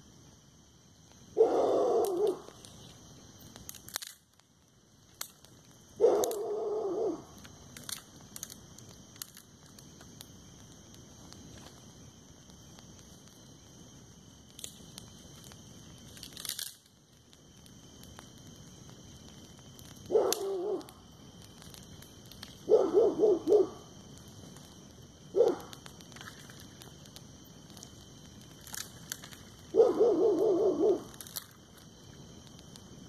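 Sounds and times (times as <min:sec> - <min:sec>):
brush fire crackling: 0:00.0 - 0:33.0
dog barking: 0:01.4 - 0:02.5, 0:06.0 - 0:07.2, 0:20.1 - 0:20.8, 0:22.7 - 0:23.8, 0:25.4 - 0:25.7, 0:29.7 - 0:31.1.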